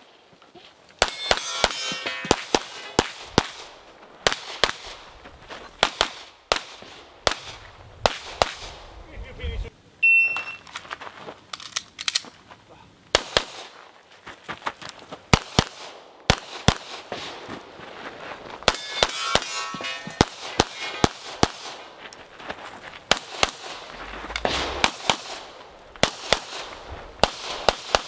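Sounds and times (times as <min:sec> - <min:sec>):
handgun shots: 0:18.7 - 0:21.8.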